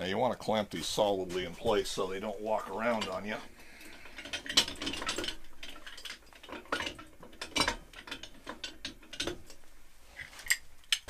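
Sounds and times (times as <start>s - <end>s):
metal clamps clicking and clattering: 1.6s - 9.6s.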